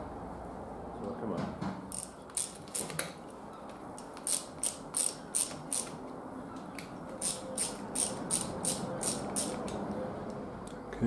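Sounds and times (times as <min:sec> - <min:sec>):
socket ratchet clicking: 0:01.9 - 0:03.1, 0:04.0 - 0:06.0, 0:07.2 - 0:09.8.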